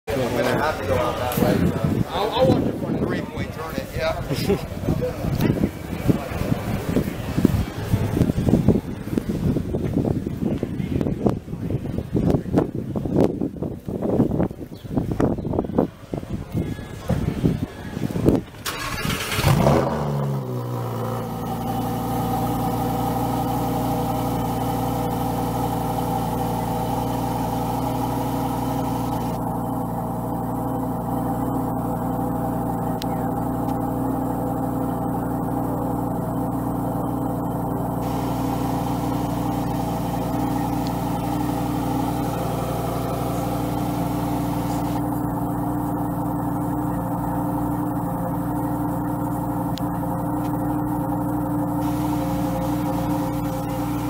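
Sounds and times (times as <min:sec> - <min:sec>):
car engine idling: 0:16.6 - 0:54.0.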